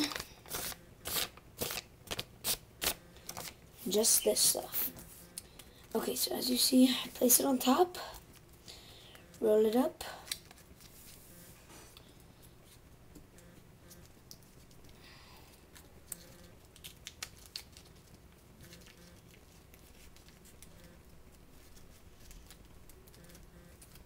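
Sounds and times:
paper banknotes rustling: 0:15.7 - 0:24.0.

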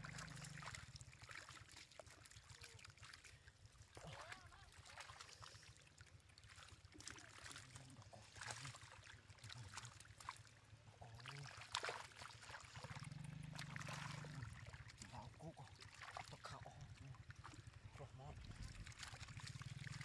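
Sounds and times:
low hum: 0:00.0 - 0:01.1, 0:09.3 - 0:20.0
hands and fish splashing in water: 0:00.0 - 0:20.0
trickle of running water: 0:00.0 - 0:20.0.

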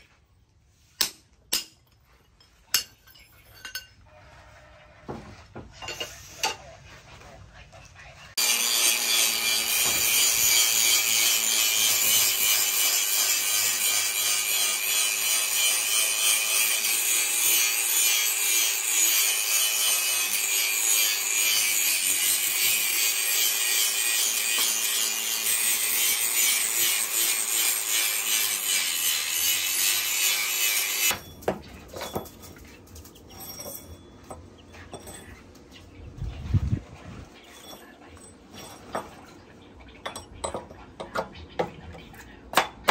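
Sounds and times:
angle grinder cutting steel: 0:08.4 - 0:31.3.

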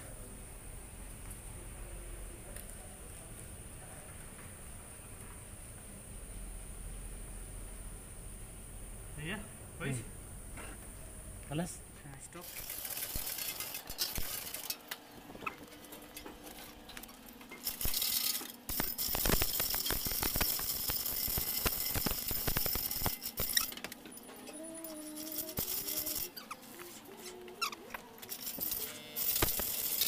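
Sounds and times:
hissing squeak: 0:24.4 - 0:28.0.

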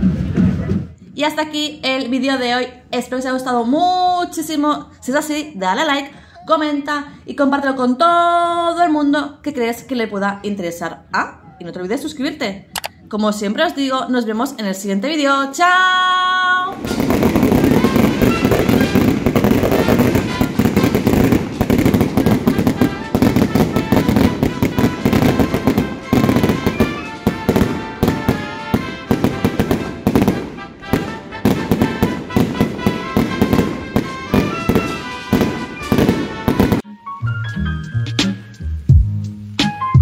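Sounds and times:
fireworks bangs and crackles: 0:00.0 - 0:01.0, 0:16.7 - 0:36.8
music playing: 0:16.8 - 0:40.0.

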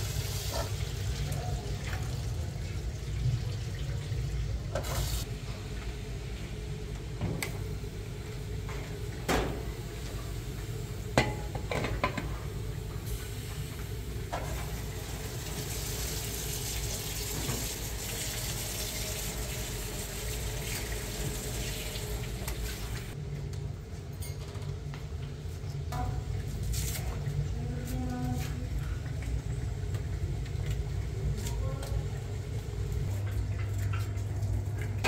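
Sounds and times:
dishes clinking: 0:11.2 - 0:12.4.

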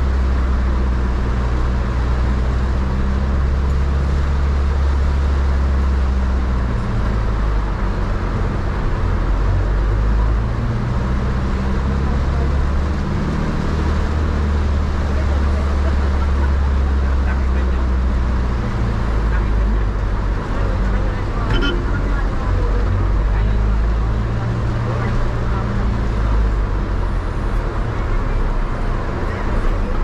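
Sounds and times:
engine and road drone: 0:00.0 - 0:30.0.

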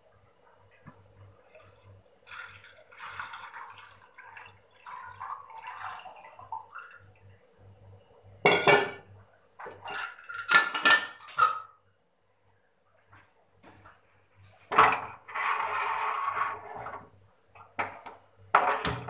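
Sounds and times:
liquid pouring into a steel pot: 0:01.4 - 0:07.3.

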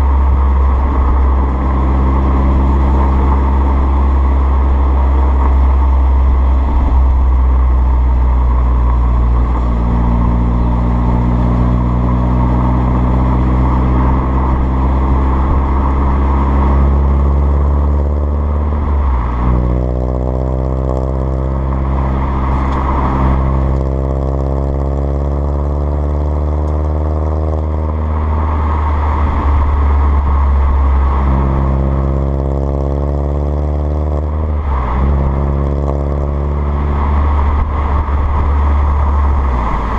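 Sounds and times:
car exhaust drone: 0:00.0 - 0:39.9.

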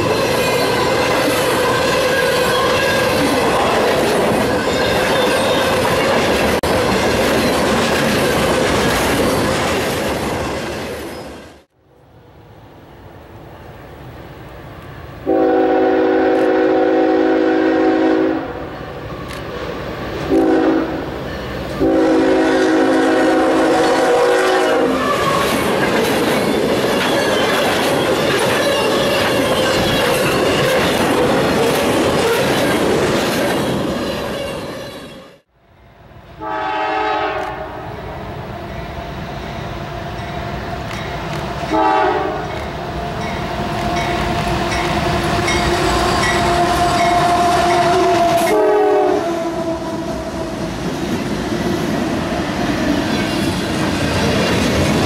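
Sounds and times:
locomotive horn blasts: 0:15.2 - 0:18.6, 0:20.3 - 0:21.0, 0:21.8 - 0:25.2, 0:36.4 - 0:37.9, 0:41.7 - 0:42.6, 0:46.3 - 0:50.1
wheels clickety-clack: 0:25.2 - 0:33.8.

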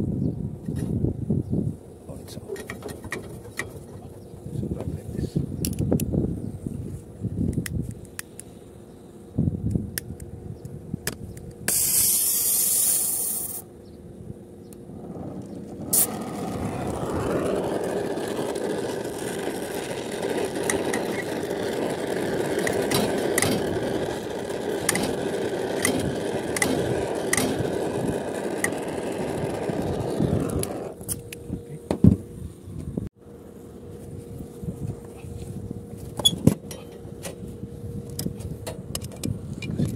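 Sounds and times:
short loud hiss: 0:11.7 - 0:13.7
torch flame roaring: 0:14.7 - 0:31.2.

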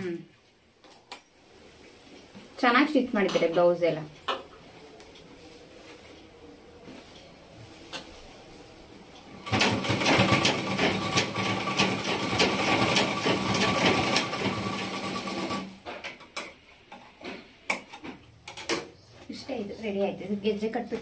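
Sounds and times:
sewing machine whirring and stitching: 0:09.4 - 0:15.8.

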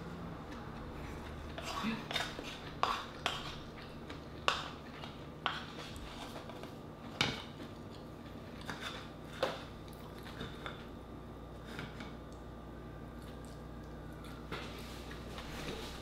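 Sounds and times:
wooden spoon scraping in a bowl: 0:01.2 - 0:03.7.

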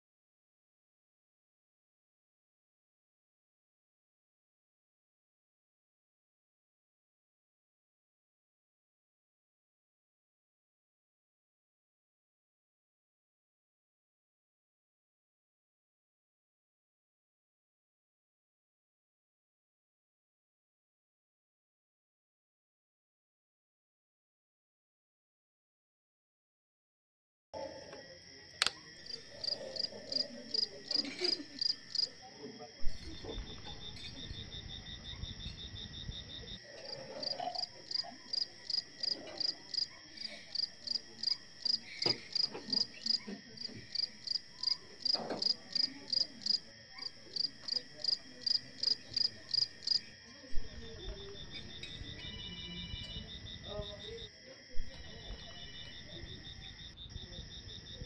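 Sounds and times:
cricket chirping: 0:27.6 - 0:58.0
insects trilling: 0:28.2 - 0:50.4.

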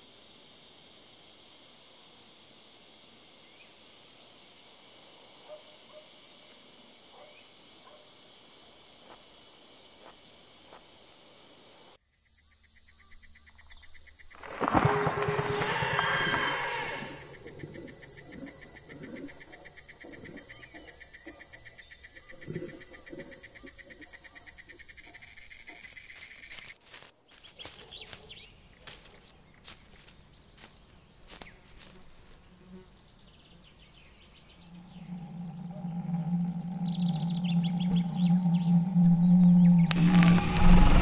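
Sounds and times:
insect buzzing trill: 0:07.6 - 0:26.8, 0:34.5 - 0:41.0
low musical drone: 0:34.7 - 0:41.0.

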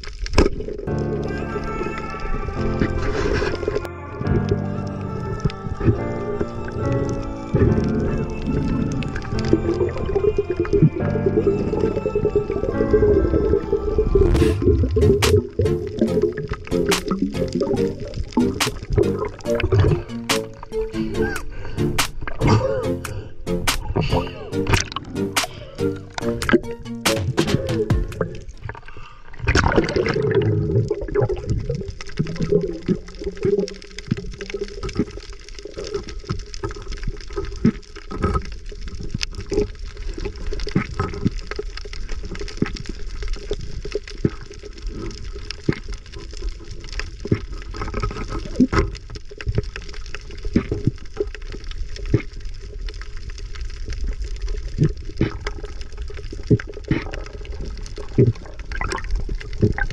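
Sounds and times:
sharp clicks and crackles: 0:00.0 - 0:01.3, 0:14.2 - 0:22.4, 0:23.0 - 0:59.9
underwater water noise: 0:00.0 - 0:59.9.

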